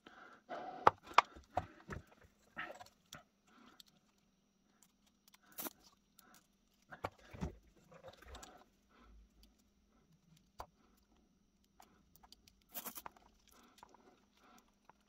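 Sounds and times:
small metal parts clicking: 2.8 - 7.0, 9.3 - 15.0.

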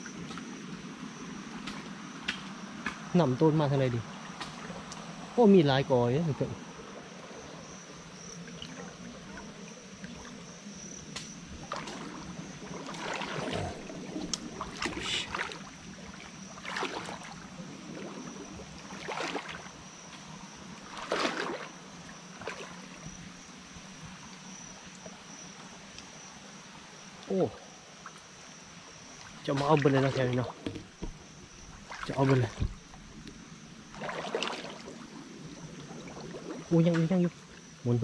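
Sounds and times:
high-pitched insect drone: 0.0 - 38.0
rustling and crackling vegetation: 6.6 - 24.2.

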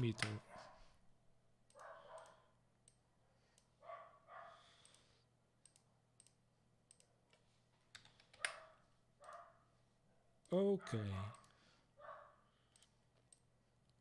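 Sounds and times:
keyboard and mouse clicking: 0.0 - 0.4, 4.8 - 8.6, 12.7 - 14.0.

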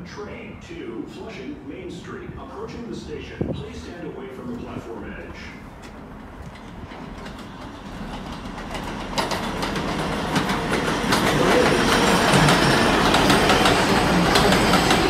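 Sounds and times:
subway train running: 0.0 - 15.0
wheels clicking over rail joints: 5.2 - 15.0.

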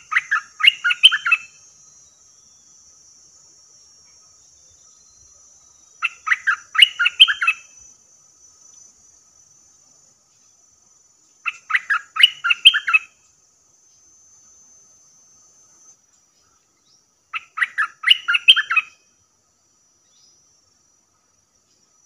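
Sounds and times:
bulbul chattering song: 0.0 - 2.5, 5.9 - 7.9, 11.4 - 13.2, 17.3 - 19.0
high insect drone: 0.0 - 22.0.

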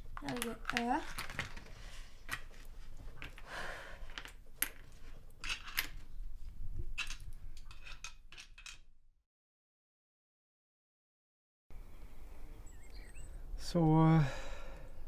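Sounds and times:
game tiles clicking on board: 0.1 - 1.6.

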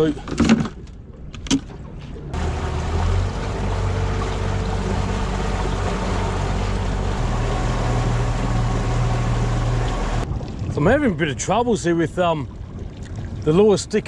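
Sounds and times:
wind: 0.0 - 14.0
rushing water: 2.3 - 13.8
outboard motor running: 2.4 - 10.3.

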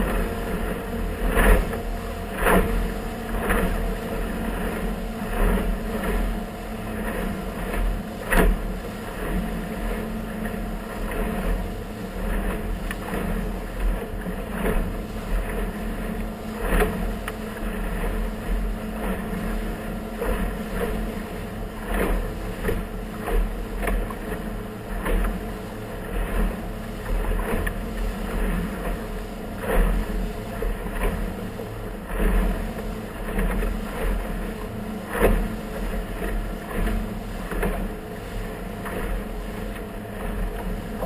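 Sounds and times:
hull slapping waves: 0.0 - 41.0
motorboat engine drone: 0.0 - 41.0.

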